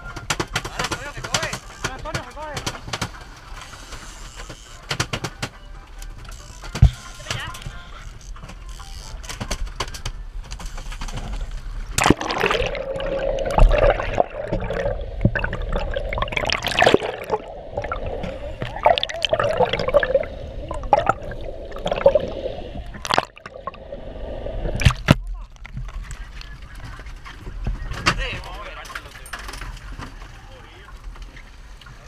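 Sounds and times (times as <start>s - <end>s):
muffled water sloshing and gurgling: 10.3s - 28.8s
sharp clicks and pops: 11.9s - 22.3s, 22.9s - 23.8s, 24.7s - 26.9s
splash: 11.9s - 25.2s
steady hum: 11.9s - 25.2s.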